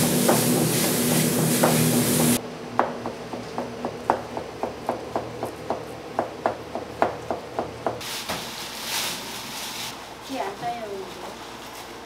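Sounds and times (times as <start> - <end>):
steady hiss: 0.0 - 2.4.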